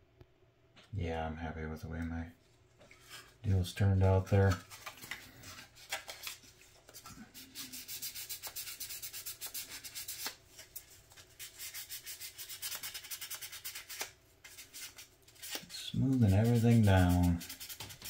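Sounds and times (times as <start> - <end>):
sandpaper rubbing on plastic: 7.4 - 10.4, 11.4 - 18.0.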